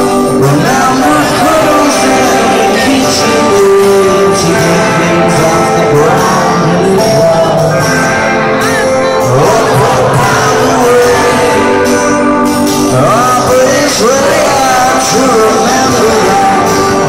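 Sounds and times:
electric guitars: 0.0s - 17.0s
live rock band playing: 0.0s - 17.0s
person singing: 0.0s - 17.0s.

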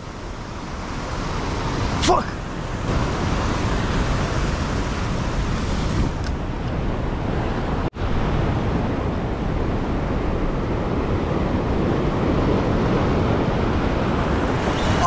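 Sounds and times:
surf washing over rocks: 0.0s - 15.0s
wind buffeting microphone: 0.0s - 15.0s.

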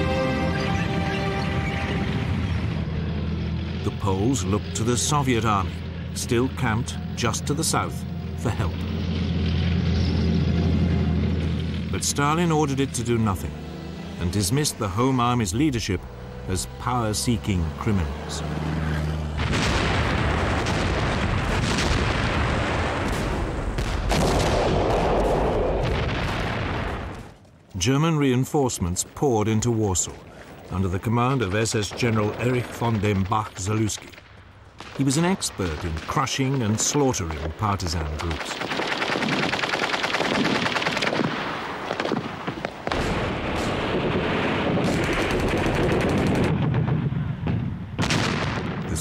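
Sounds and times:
artillery and gunfire: 19.0s - 27.5s, 30.4s - 49.0s
heavy explosion rumble: 19.3s - 27.4s, 41.2s - 49.0s
sharp gunshots: 19.4s - 27.1s, 31.8s - 49.0s
rapid gunfire: 38.2s - 46.7s.

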